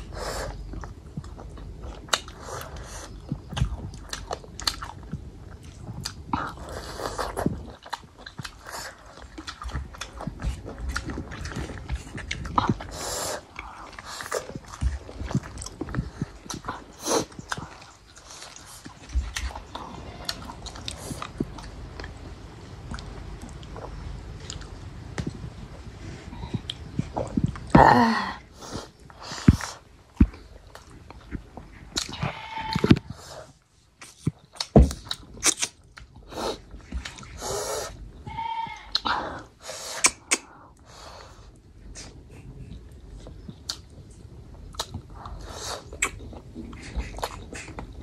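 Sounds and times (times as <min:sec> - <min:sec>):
person chewing crunchy meat: 0:00.0 - 0:24.8, 0:41.9 - 0:48.0.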